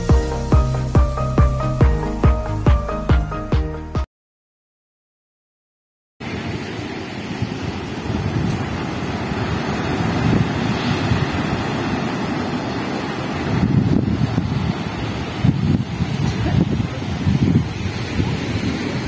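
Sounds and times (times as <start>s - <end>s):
surf breaking on beach: 6.2s - 19.0s
wind buffeting microphone: 6.4s - 19.0s.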